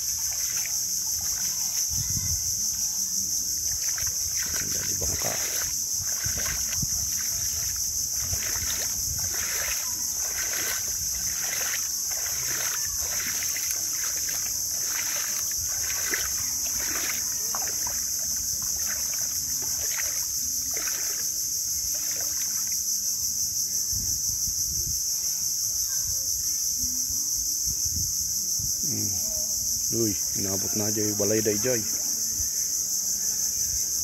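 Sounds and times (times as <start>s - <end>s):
small waves lapping: 0.0s - 1.9s, 3.1s - 22.8s
insects chorus: 0.0s - 34.0s.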